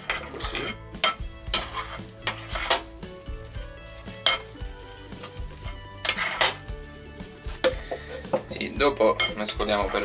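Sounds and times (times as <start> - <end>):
wet dough squelching: 0.0 - 7.9.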